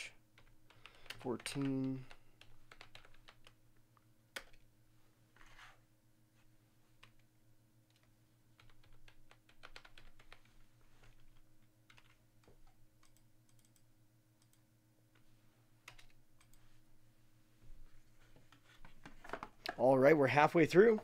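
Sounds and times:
low steady hum: 0.0 - 21.0
keyboard typing: 0.4 - 3.6, 4.3 - 4.7, 7.9 - 10.5, 11.1 - 14.6, 15.8 - 16.6.

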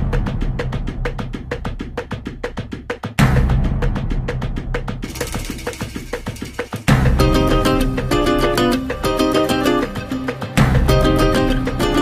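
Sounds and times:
rhythmic drum beat: 0.0 - 12.0
loud hit: 5.0 - 8.1.

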